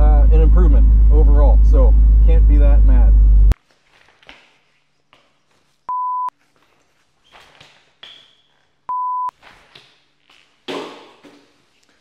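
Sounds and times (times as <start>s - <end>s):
electronic censor bleep: 5.9s - 6.3s, 8.9s - 9.3s.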